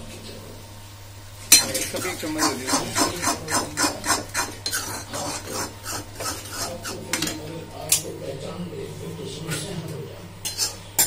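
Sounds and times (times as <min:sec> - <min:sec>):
steel spoon scraping a pan: 0:01.5 - 0:07.4, 0:10.4 - 0:11.0.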